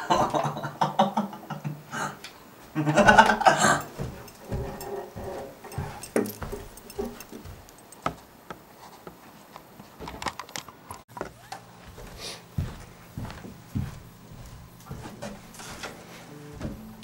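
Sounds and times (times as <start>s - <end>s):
light knocks clicks and rustles: 3.0s - 9.2s
low steady hum: 11.2s - 17.0s.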